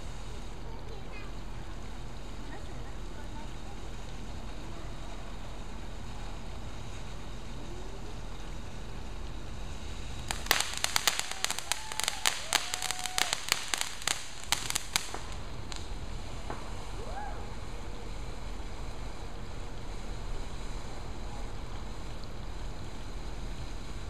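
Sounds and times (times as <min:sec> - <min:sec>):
firework fountain hissing: 0:00.0 - 0:24.0
sharp firework cracks: 0:10.2 - 0:19.8.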